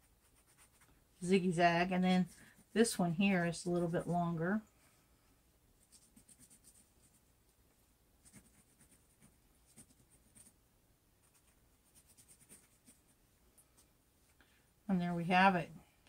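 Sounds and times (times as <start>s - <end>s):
marker scratching on fabric: 0.0s - 4.1s, 5.8s - 7.6s, 8.2s - 10.6s, 11.2s - 13.8s.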